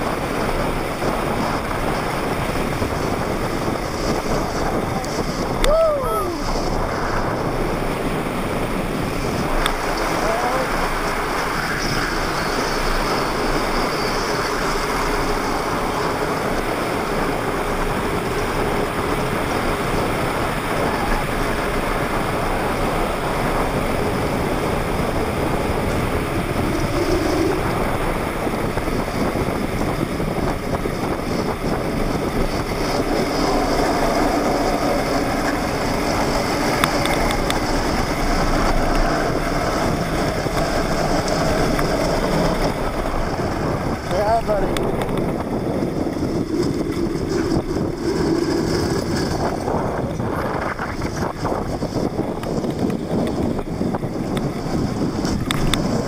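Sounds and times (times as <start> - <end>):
plastic wheels rolling on asphalt: 0.0 - 56.0
wind on microphone: 0.0 - 56.0.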